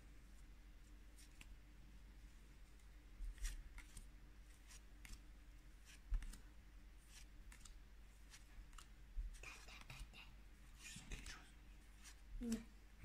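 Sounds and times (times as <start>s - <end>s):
trading cards being shuffled: 3.3s - 5.2s, 5.8s - 6.4s, 7.1s - 8.9s.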